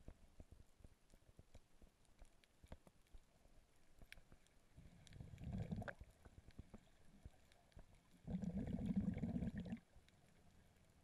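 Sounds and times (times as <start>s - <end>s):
faint clicks: 0.0s - 8.6s, 9.6s - 11.0s
low underwater gurgling rumble: 4.8s - 6.2s, 8.1s - 10.0s.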